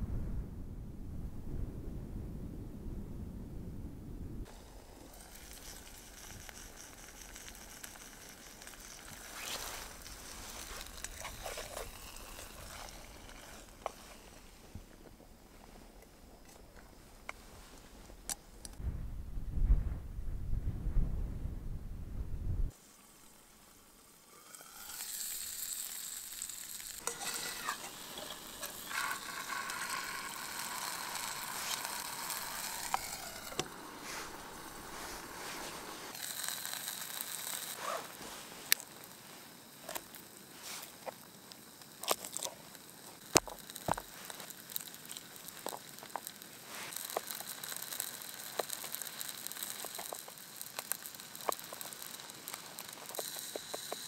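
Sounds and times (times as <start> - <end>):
chicken sizzling in oil: 22.7 - 54.0.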